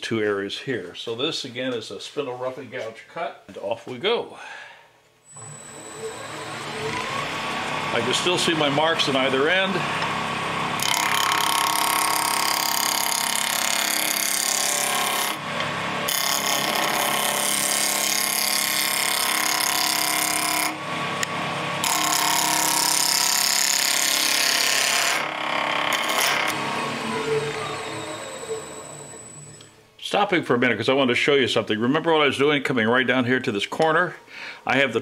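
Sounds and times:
lathe humming: 5.3 - 29.8
gouge cutting wood on lathe: 5.4 - 29.3.

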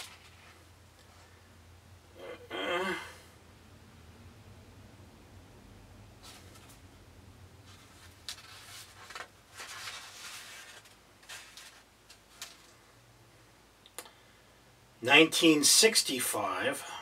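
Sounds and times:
book pages rustling: 0.0 - 1.2, 6.2 - 6.9, 7.6 - 12.8.

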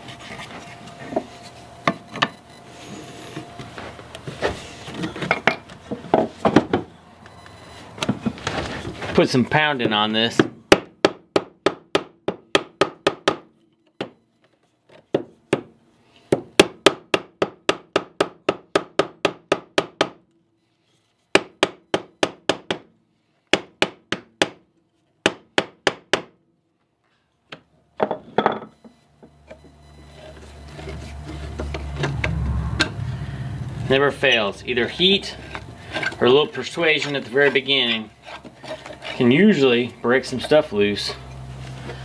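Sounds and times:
low rumble: 31.6 - 35.9.

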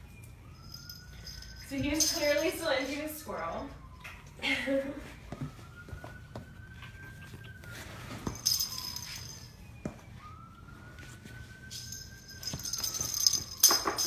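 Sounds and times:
faint siren rising and falling: 0.0 - 14.0
small toy bell jingling: 0.6 - 2.7, 8.4 - 9.4, 11.7 - 14.0.

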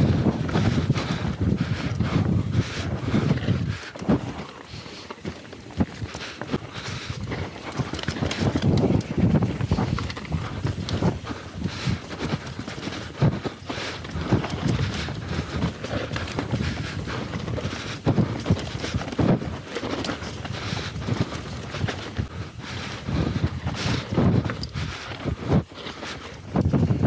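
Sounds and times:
mountain bike rattling over bumps: 0.0 - 27.0
wind noise: 0.0 - 27.0.

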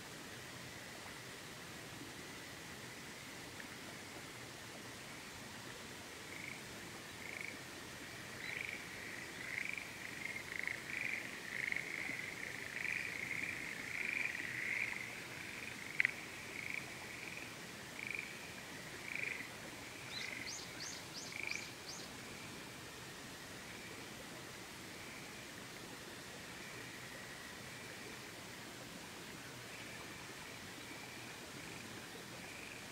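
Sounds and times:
frogs croaking: 6.1 - 24.2, 24.8 - 28.4, 29.4 - 32.9.

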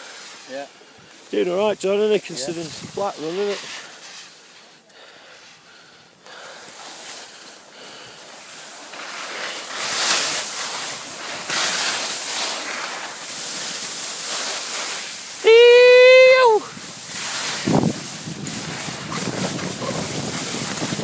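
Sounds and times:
skis hissing over snow: 0.0 - 21.0
wind on microphone: 2.6 - 3.1, 16.6 - 21.0.

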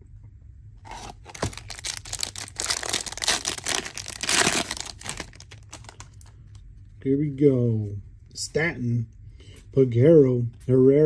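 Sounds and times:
foil wrapper crinkling: 0.9 - 6.3.

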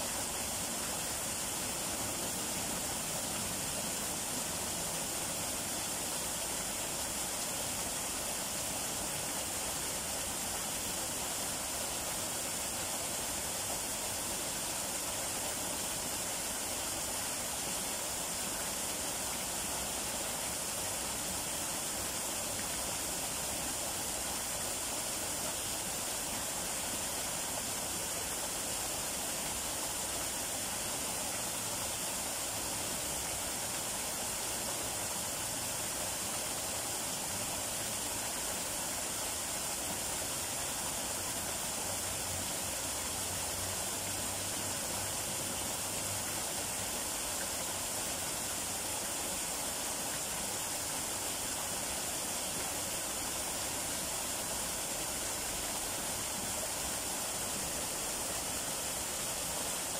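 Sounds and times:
waterfall splashing into pool: 0.0 - 59.9.

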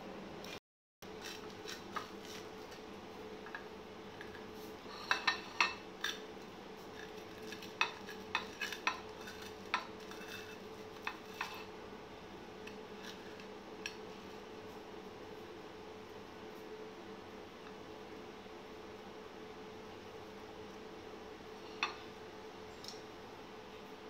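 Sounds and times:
faint steady hum: 0.0 - 24.0
knife scraping ceramic plate: 4.2 - 6.2, 6.9 - 11.7, 12.7 - 14.0.

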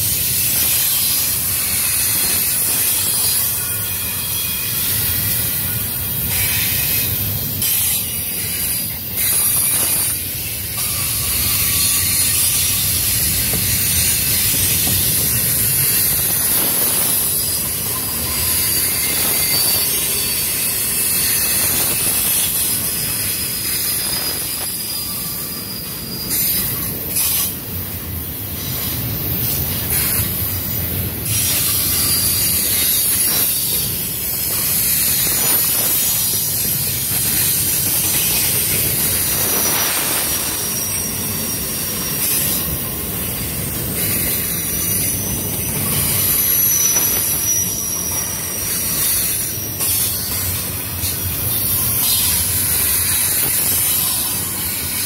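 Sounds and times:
freight train wheels rumbling: 0.0 - 55.0
high wheel squeal: 0.0 - 55.0
hiss: 0.0 - 55.0.

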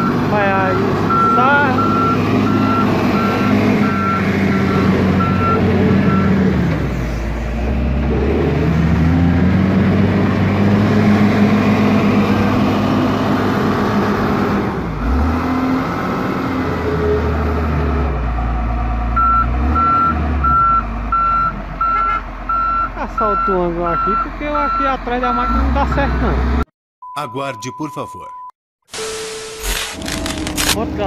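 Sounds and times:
diesel engine running: 0.0 - 26.6
reversing alarm beeps: 1.1 - 6.3, 19.2 - 26.1.

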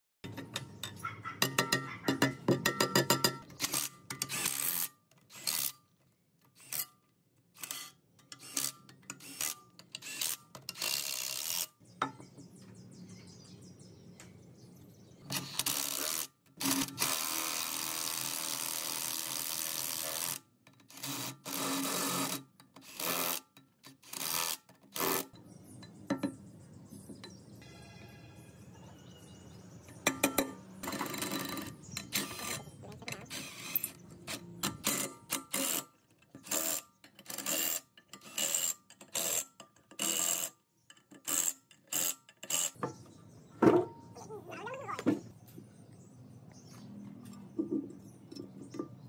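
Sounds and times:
metal parts clinking and scraping: 2.6 - 11.7, 30.0 - 42.8.

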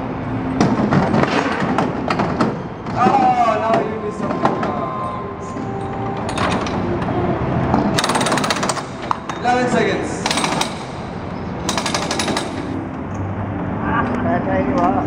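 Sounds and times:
pneumatic wheel guns rattling: 7.9 - 9.6, 10.2 - 12.8.

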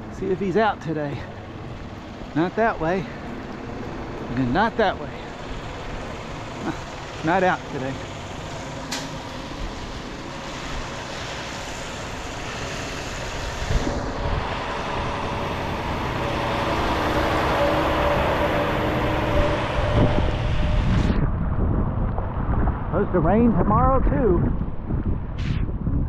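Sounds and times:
truck engine: 0.0 - 23.4
tyres hissing on wet road: 2.5 - 20.8.

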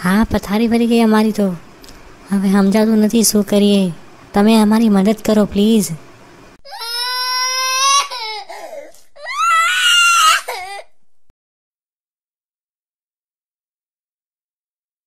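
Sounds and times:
high-pitched wailing cry: 6.6 - 10.8.

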